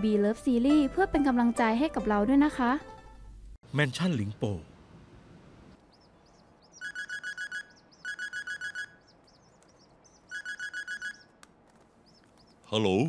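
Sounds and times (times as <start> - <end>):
telephone ringing electronic trill: 6.8 - 9.0.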